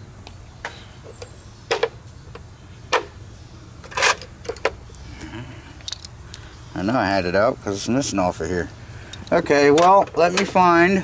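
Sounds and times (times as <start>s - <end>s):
metal tools clicking and clanking: 5.8s - 6.4s.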